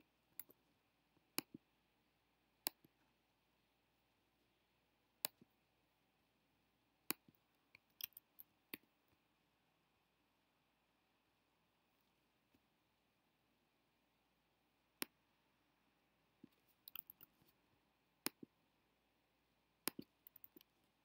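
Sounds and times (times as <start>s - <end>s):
computer mouse clicks: 0.4s - 0.6s, 19.8s - 20.7s.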